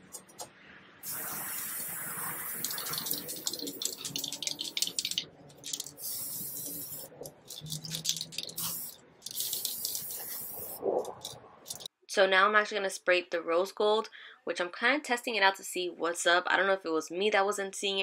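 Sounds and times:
spray paint can hissing: 1.0 - 11.9.

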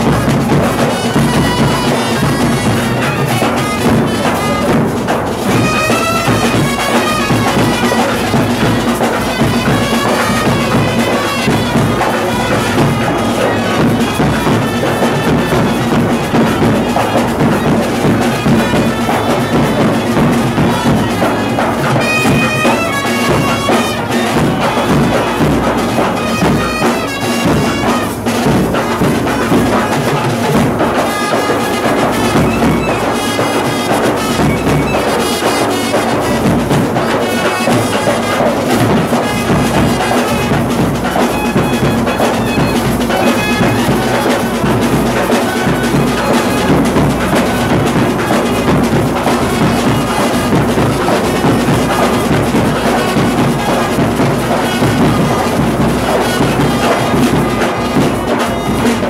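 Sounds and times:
clarinet melody: 0.0 - 4.8, 5.4 - 28.2, 30.9 - 49.0
side drums beating: 0.0 - 59.0
trumpet melody: 0.0 - 59.0.

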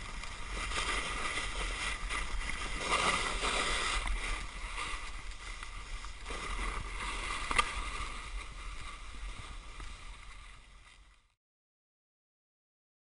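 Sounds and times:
snowboard carving over snow: 0.0 - 11.4
wind rumbling on microphone: 0.0 - 11.4.

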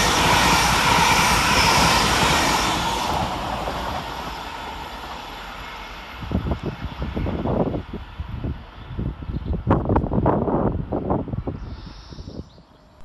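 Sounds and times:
train passing at speed: 0.0 - 13.0
wind buffeting microphone: 6.1 - 12.7.

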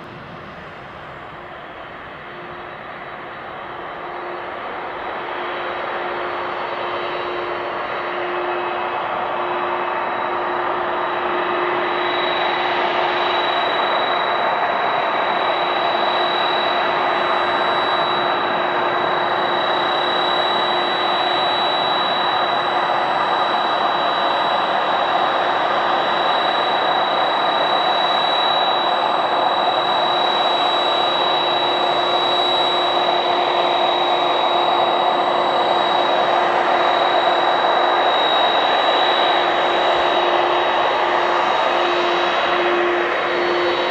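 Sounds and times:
jet engines rushing hum: 0.0 - 43.9.

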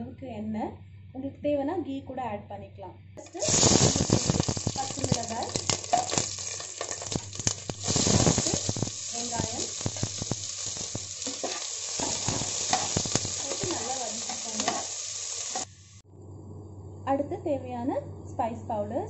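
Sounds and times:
onions sizzling in hot oil: 3.2 - 16.0.

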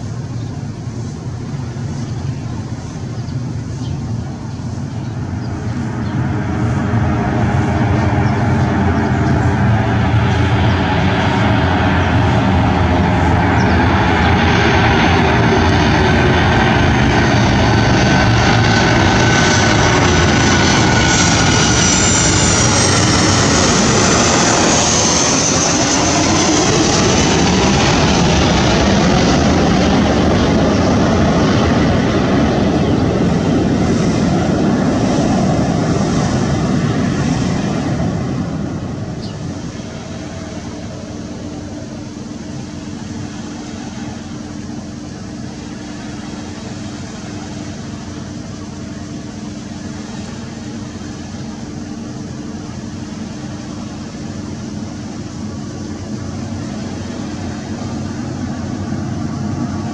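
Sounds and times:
jet airliner passing overhead: 0.0 - 59.9.

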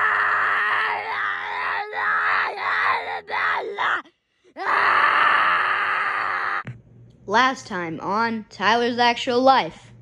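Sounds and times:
high voice yelling aaah: 0.0 - 6.6.

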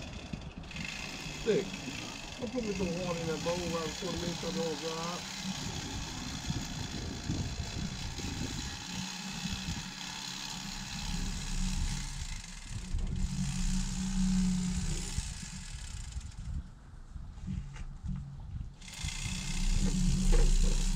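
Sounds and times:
engine running steadily: 0.0 - 16.8, 17.5 - 20.9.

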